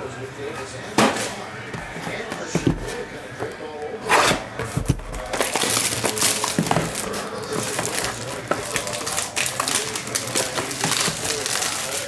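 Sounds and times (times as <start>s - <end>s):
foil wrapping crinkling: 5.1s - 12.0s.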